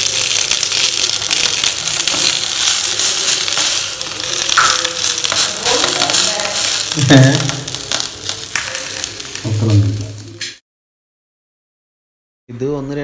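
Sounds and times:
leaves rustling and crinkling: 0.0 - 10.1
rice rotis sizzling on griddle: 0.0 - 10.6.

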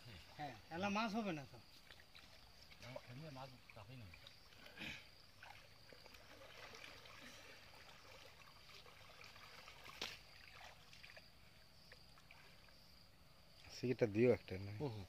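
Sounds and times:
river water splashing and trickling: 0.0 - 15.0
sharp water splash: 1.8 - 12.6.

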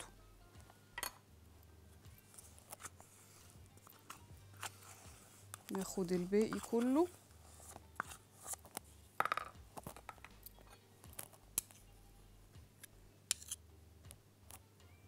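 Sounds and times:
metal spoon scraping and clinking: 5.7 - 8.8, 13.3 - 13.6.

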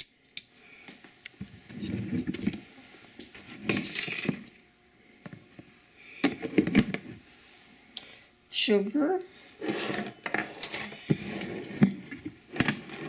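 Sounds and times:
kitchen utensils and dishes clinking: 9.7 - 11.2.

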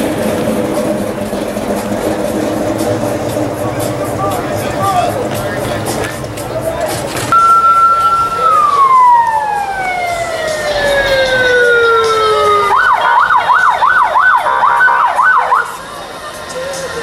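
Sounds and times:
vehicle siren wailing and yelping: 7.3 - 15.8.

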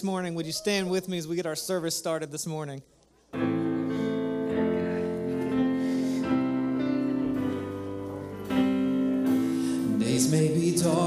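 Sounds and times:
keyboard chords: 3.4 - 11.0.

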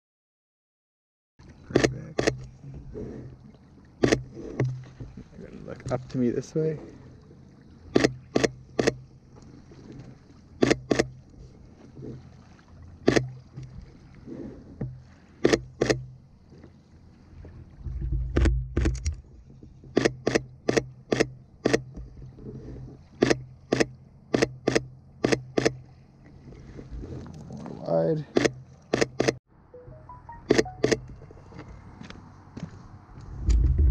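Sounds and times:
low rumble: 33.1 - 33.9.

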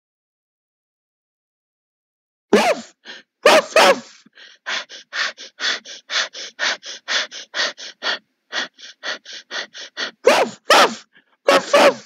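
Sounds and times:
person imitating dog panting: 2.6 - 12.0.

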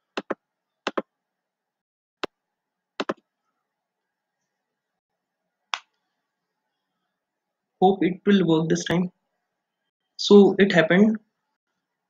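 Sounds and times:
computer mouse clicks: 3.0 - 3.2.

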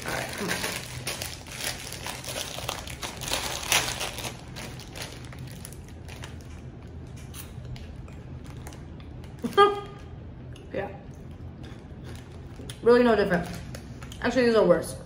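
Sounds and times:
plastic packet crinkling: 0.0 - 7.1.

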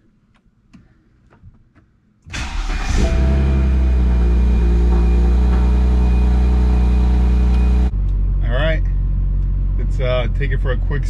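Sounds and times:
car engine starting and idling: 2.3 - 11.0.

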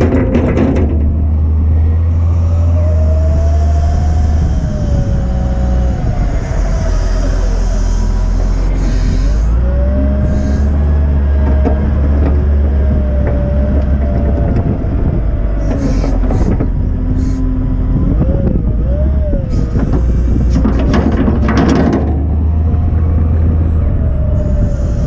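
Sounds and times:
diesel engine running: 0.0 - 25.0
wavering whine: 1.0 - 25.0
hydraulic bursts of noise: 2.1 - 10.9.

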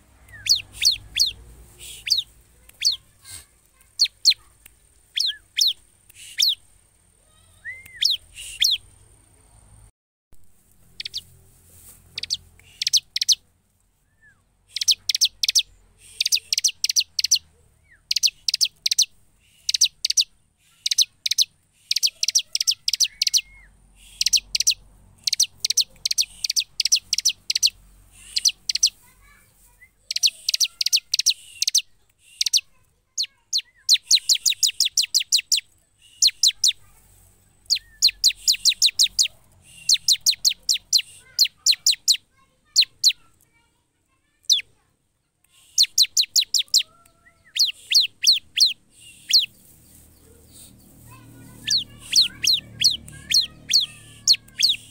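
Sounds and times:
bird singing high repeated notes: 0.3 - 3.0, 5.2 - 6.6, 7.6 - 8.9, 12.2 - 13.4, 14.1 - 29.0, 29.9 - 36.8, 37.7 - 43.2, 45.7 - 49.7.

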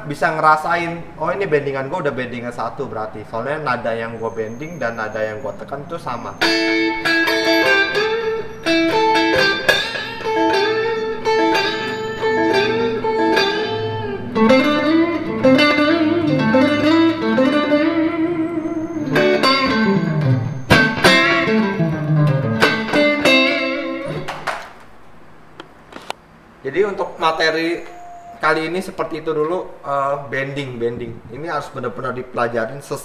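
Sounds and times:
electric guitar playing blues licks: 6.4 - 24.5.

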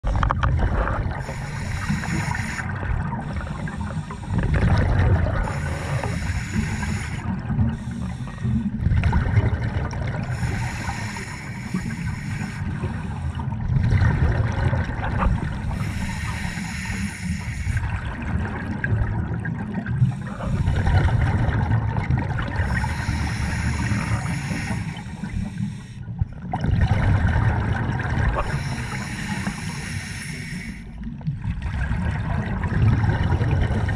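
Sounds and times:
regulator exhaust bubbles: 0.0 - 11.0
low underwater hiss: 0.9 - 13.9, 14.5 - 26.5, 27.2 - 31.3.

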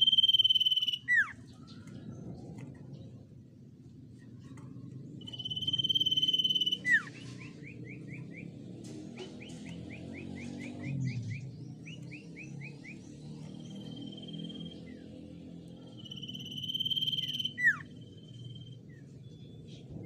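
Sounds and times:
bird whistling: 0.0 - 1.4, 5.2 - 8.6, 9.2 - 15.1, 15.8 - 19.8
bird chirps: 0.0 - 20.0.

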